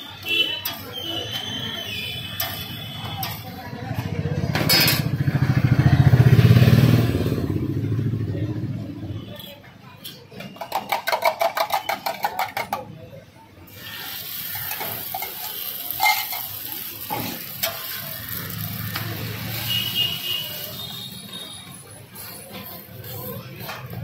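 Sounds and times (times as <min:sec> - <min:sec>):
egg and oil frying on griddle: 0:00.2 - 0:04.0, 0:13.7 - 0:24.0
steel spatula knocking griddle: 0:14.5 - 0:18.1.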